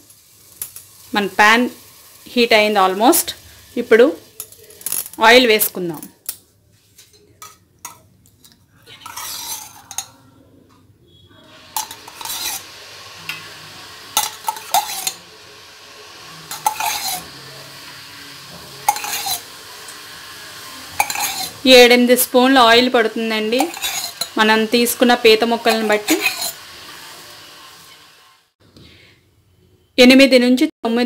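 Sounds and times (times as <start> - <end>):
oil sizzling faintly: 0.0 - 6.0, 8.8 - 10.4, 11.1 - 28.6
metal spoon clinking on pan: 9.0 - 10.2, 11.7 - 12.7, 14.2 - 15.2, 16.5 - 17.3, 18.8 - 20.1, 21.0 - 21.6, 23.5 - 24.4, 25.6 - 26.6.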